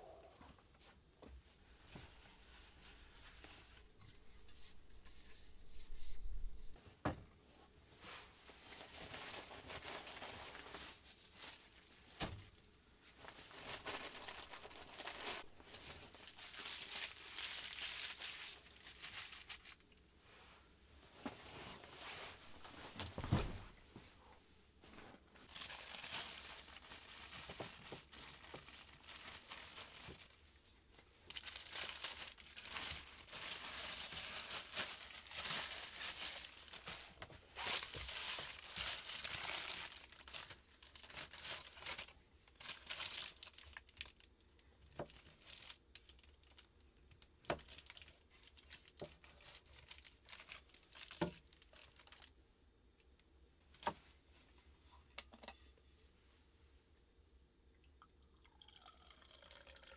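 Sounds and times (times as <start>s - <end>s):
wrapping paper crinkling: 8.5s - 20.0s, 25.4s - 30.6s, 31.2s - 52.4s.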